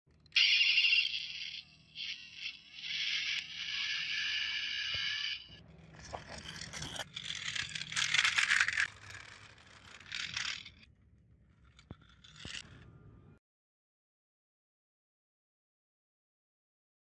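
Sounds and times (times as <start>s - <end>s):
toy car wheels scraping concrete: 0.8s - 10.9s, 11.5s - 12.7s.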